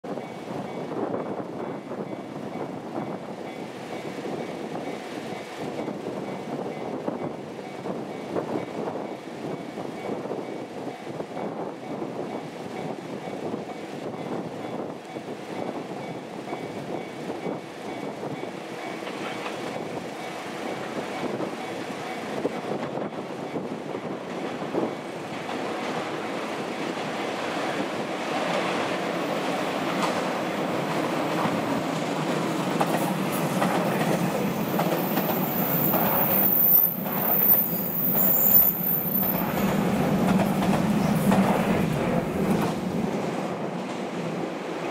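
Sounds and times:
electric train running past: 0.1 - 44.9
wheels clacking over rail joints: 24.8 - 42.9
high-pitched wheel squeal: 35.0 - 39.5.

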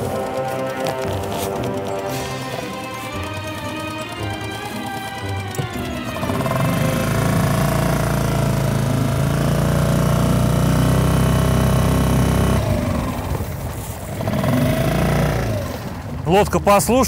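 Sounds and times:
outboard motor running: 0.0 - 16.2.

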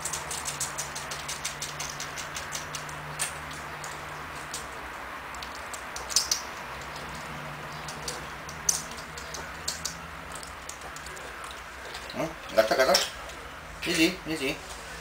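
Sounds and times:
piglet suckling clicks and smacks: 0.0 - 12.2.

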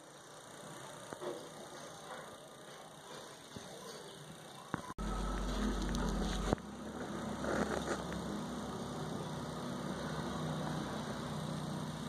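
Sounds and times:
low mechanical hum: 0.0 - 12.0
heavy low rumble: 5.0 - 8.3.

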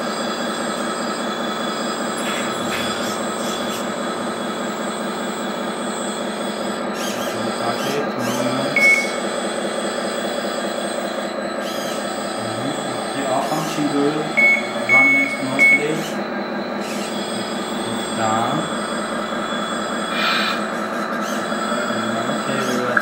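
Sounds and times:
hydraulic pump whining: 0.0 - 23.0
short high squeak: 2.2 - 3.9.

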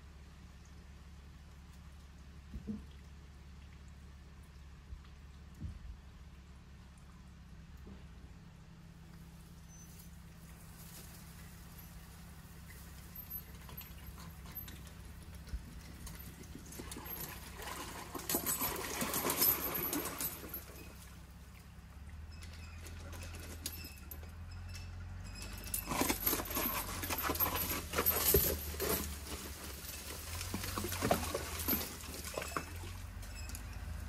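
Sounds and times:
low steady hum: 0.0 - 34.0
boulder crunching through soil and rocks: 25.8 - 33.2.

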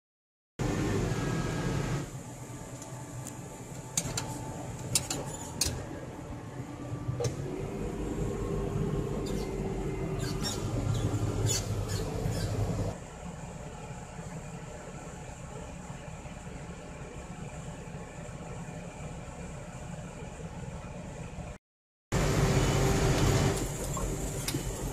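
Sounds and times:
tractor diesel engine running: 0.6 - 21.6, 22.2 - 24.9
cab squeaks and rattles: 5.0 - 5.8, 9.2 - 12.8.

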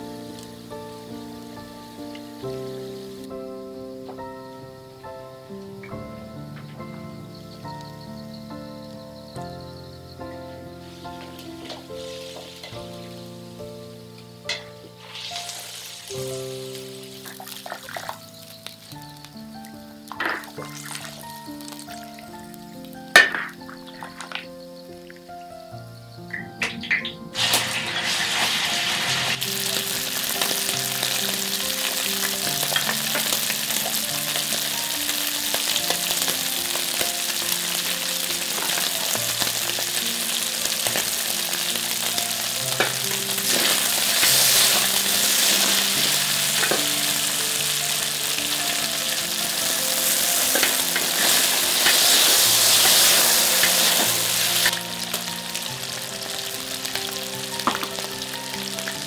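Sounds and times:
meat sizzling in hot oil: 10.8 - 24.3, 26.3 - 59.0.

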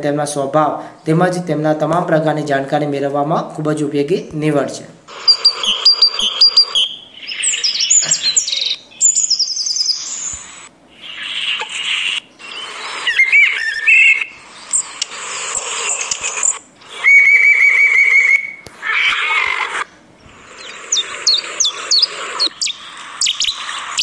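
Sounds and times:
high falling bird notes: 5.1 - 15.0, 16.4 - 24.0
bird rapid trill: 5.1 - 24.0
bird chirps and whistles: 5.2 - 15.0, 16.4 - 18.6, 20.4 - 24.0.

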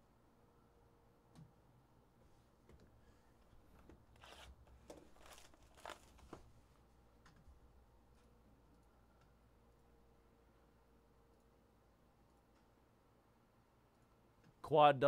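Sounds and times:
packaging tearing and crinkling: 4.2 - 6.4.

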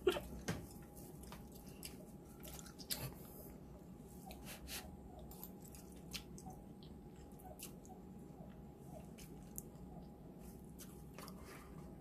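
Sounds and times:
wet chewing and slurping: 0.7 - 3.6.

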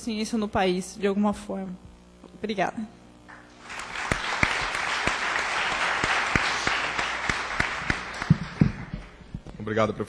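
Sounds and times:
audience applauding: 3.4 - 9.4.

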